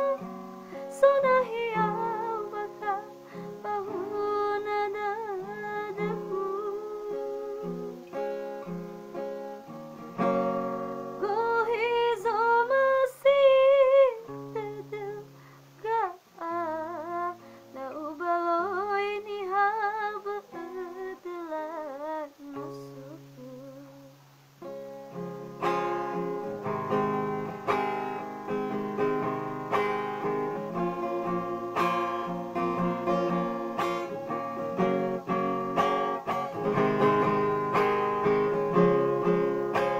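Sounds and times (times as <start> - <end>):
woman singing with vibrato: 0.0 - 8.1, 11.1 - 24.2
strummed guitar chords: 0.0 - 12.8, 22.5 - 39.9.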